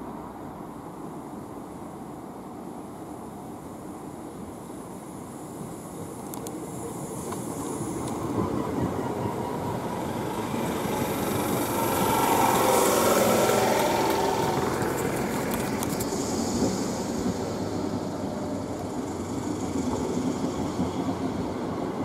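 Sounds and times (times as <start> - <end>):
electric train running: 6.3 - 22.0
wheels clicking over rail joints: 7.2 - 22.0.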